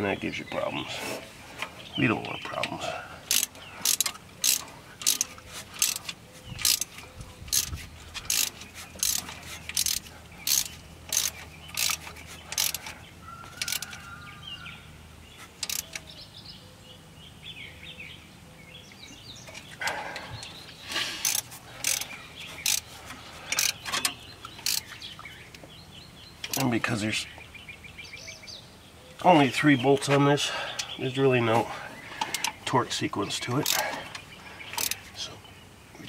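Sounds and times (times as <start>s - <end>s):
birds chirping: 0.0s - 36.0s
ratchet wrench clicking: 3.3s - 12.9s, 13.6s - 14.0s, 15.6s - 16.0s, 21.2s - 22.9s, 23.5s - 24.9s, 26.4s - 26.7s, 33.6s - 33.9s, 34.8s - 35.0s.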